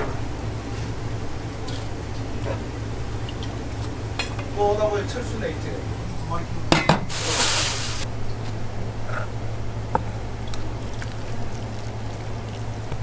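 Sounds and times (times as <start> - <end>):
kitchen machinery hum: 0.0 - 13.0
short hiss: 7.1 - 8.0.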